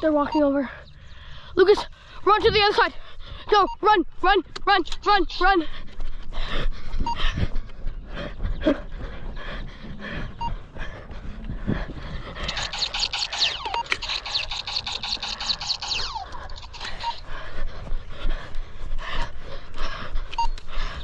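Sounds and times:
heavy panting breaths: 0:00.1 - 0:03.8, 0:05.1 - 0:21.0
toy laser gun firing: 0:12.4 - 0:17.2.

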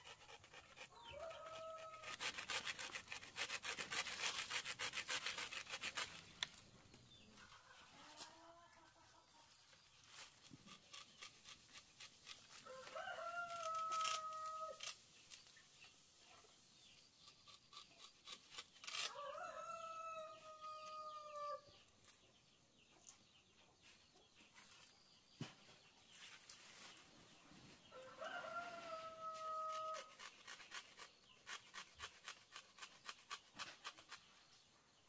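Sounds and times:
rooster crowing: 0:12.6 - 0:14.8, 0:19.1 - 0:21.6, 0:28.0 - 0:30.1.

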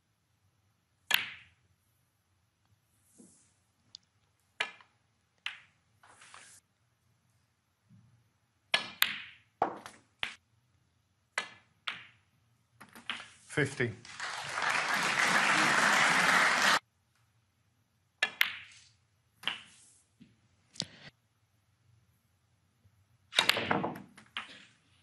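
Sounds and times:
snooker balls knocking together: 0:08.7 - 0:10.4, 0:11.4 - 0:12.2, 0:23.4 - 0:24.8.

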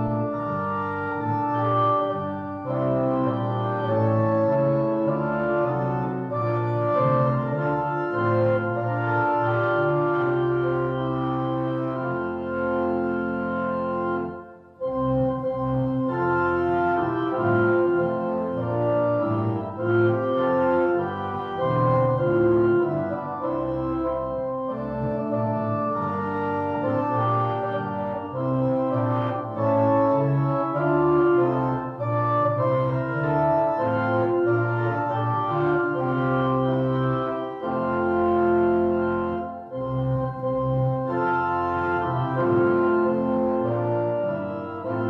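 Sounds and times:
organ playing hymn chords: 0:00.0 - 0:45.0.

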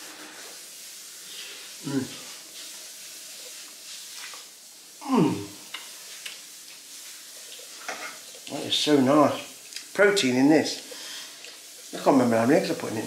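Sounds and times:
low hiss: 0:00.0 - 0:13.0
man eating: 0:01.7 - 0:10.0, 0:11.1 - 0:11.9
man humming in enjoyment: 0:01.8 - 0:02.2, 0:05.0 - 0:05.6.

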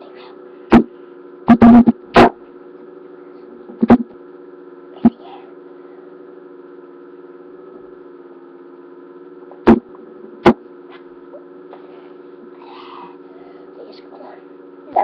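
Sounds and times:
electrical hum: 0:00.0 - 0:15.0
loud bump: 0:09.6 - 0:10.6.

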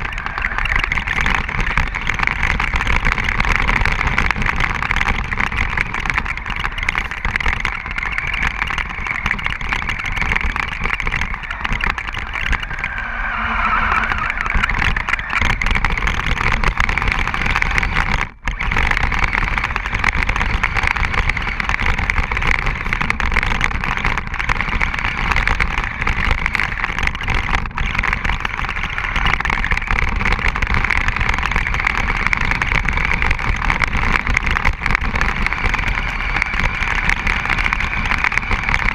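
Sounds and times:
rc truck motor and tyre noise: 0:00.0 - 0:38.9.

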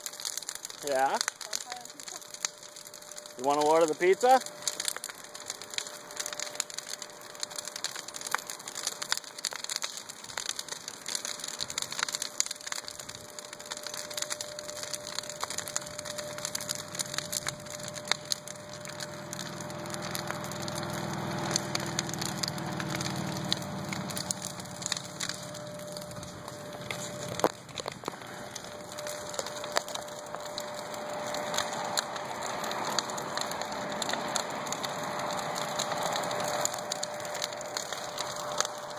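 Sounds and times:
bonfire crackling and popping: 0:00.0 - 0:38.9
low rumble: 0:14.1 - 0:38.9.

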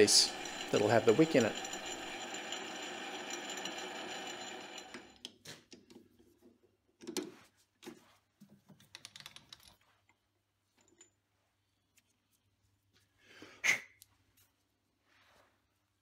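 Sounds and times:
metal lathe running: 0:00.0 - 0:05.2.

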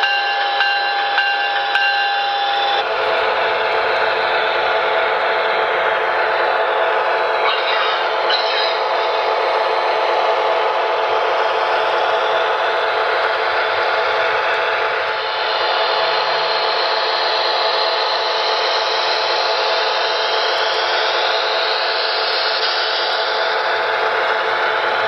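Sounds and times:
electric locomotive whir and hiss: 0:00.0 - 0:25.0
steady humming tones: 0:00.0 - 0:25.0.

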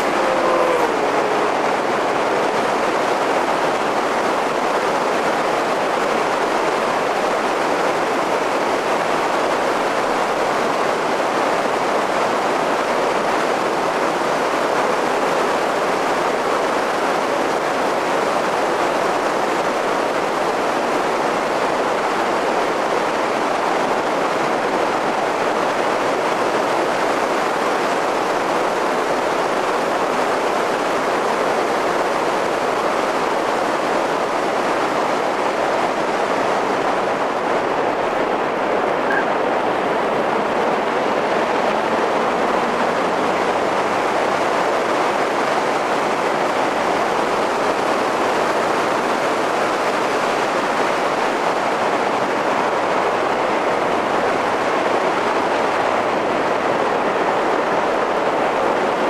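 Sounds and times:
wind rush and road noise: 0:00.0 - 0:59.0.

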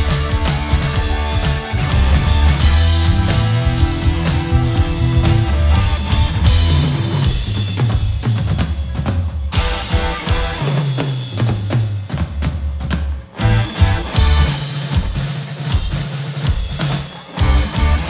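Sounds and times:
bass guitar: 0:00.0 - 0:08.6, 0:09.5 - 0:12.0, 0:13.3 - 0:14.8, 0:17.3 - 0:18.0
drum kit: 0:00.0 - 0:18.0
rock band playing: 0:00.0 - 0:18.0.

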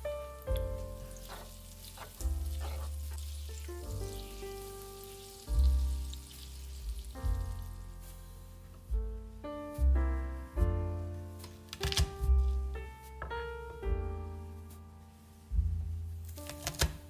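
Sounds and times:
piano music: 0:00.0 - 0:17.0
food sizzling in frying pan: 0:00.4 - 0:07.8.

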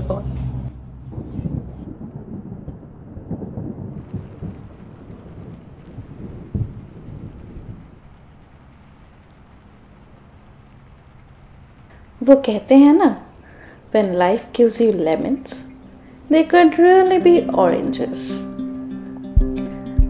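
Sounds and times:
low rumbling and thuds: 0:00.0 - 0:08.1
rain falling: 0:00.0 - 0:19.6.

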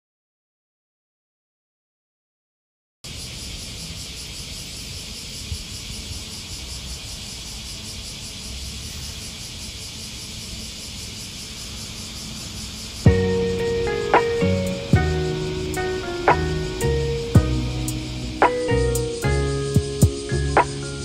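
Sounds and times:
high drone of insects: 0:03.1 - 0:21.0
distant traffic rumble: 0:05.5 - 0:21.0.

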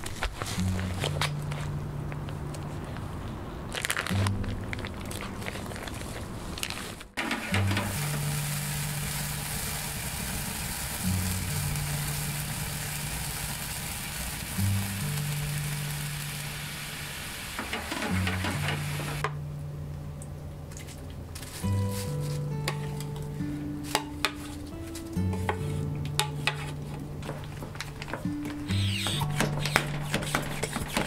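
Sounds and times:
sauce sizzling in a metal pan: 0:07.5 - 0:19.2
background music with bass line: 0:21.6 - 0:30.1.

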